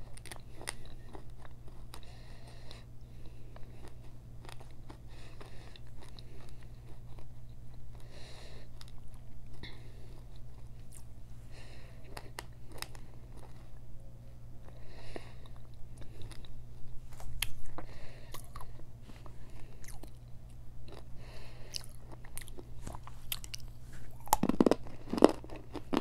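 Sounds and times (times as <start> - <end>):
chewing crisp clay pieces: 0.0 - 2.8, 3.5 - 8.0, 12.1 - 13.8, 17.4 - 21.1, 21.7 - 26.0
low steady hum: 0.0 - 26.0.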